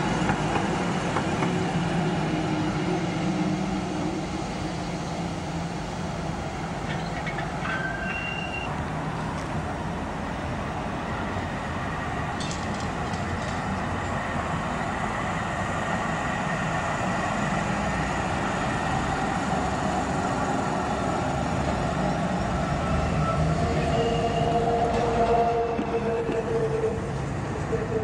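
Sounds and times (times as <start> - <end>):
tram wheels rumbling on rail: 0.0 - 28.0
tram wheel squeal: 6.8 - 8.8, 22.8 - 28.0.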